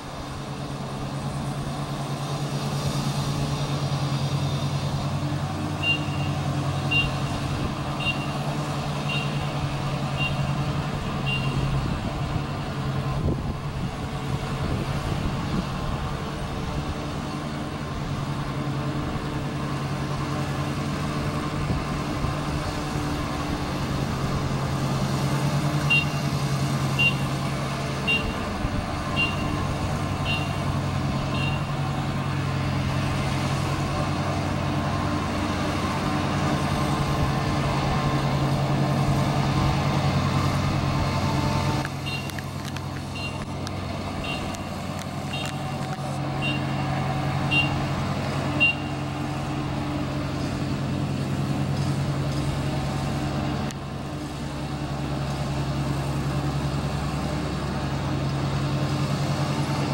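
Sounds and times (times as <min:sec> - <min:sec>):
combine harvester engine running: 0:00.0 - 0:59.9.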